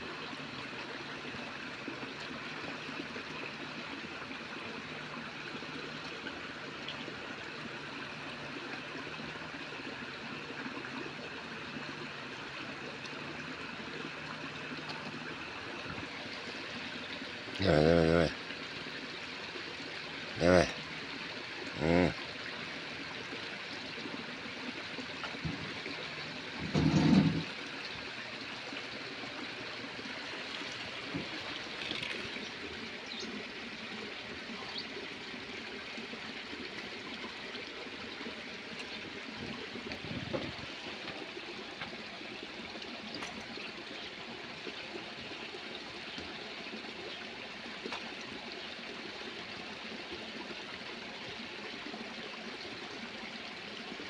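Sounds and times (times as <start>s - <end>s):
running water rushing: 0.0s - 54.0s
short voice-like sound: 17.6s - 18.4s, 20.4s - 20.7s, 21.8s - 22.2s.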